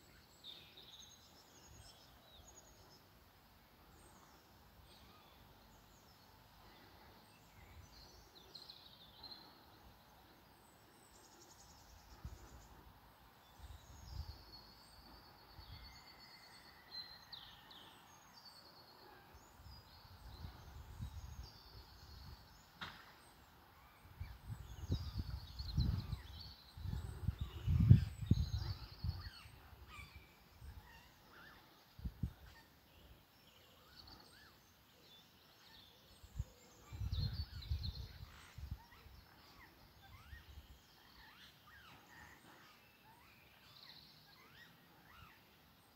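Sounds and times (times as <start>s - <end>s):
small birds chirping and trilling: 0.0s - 45.9s
wind buffeting the microphone: 19.7s - 22.5s, 24.1s - 29.9s, 32.0s - 32.5s, 36.3s - 39.2s.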